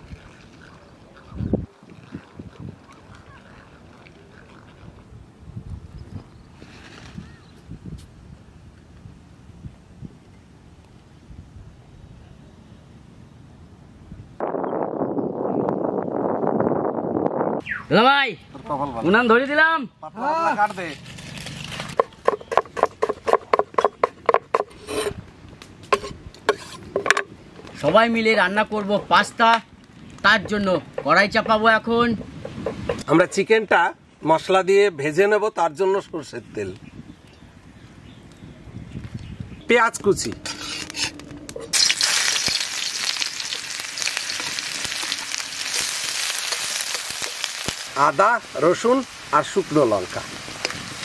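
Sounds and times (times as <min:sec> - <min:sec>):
onion sizzling in hot oil: 0:41.7 - 0:51.0.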